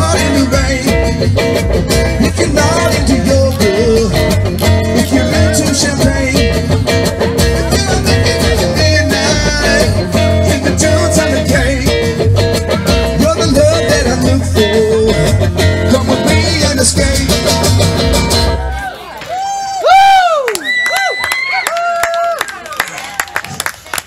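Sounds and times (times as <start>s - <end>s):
upright double bass: 0.0s - 18.8s
electric guitar: 0.0s - 18.9s
acoustic guitar: 0.0s - 19.0s.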